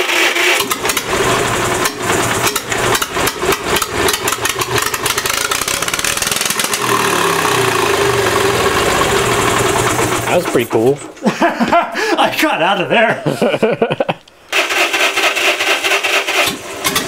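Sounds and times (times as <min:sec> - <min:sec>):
engine exhaust bangs and drone: 0:00.6 - 0:10.8.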